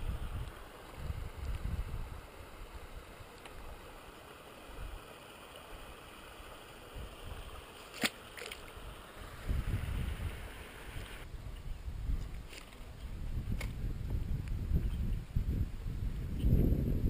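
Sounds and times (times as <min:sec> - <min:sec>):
wind rumbling on microphone: 0:00.0 - 0:03.8, 0:08.7 - 0:17.0
creek water running: 0:00.0 - 0:15.8.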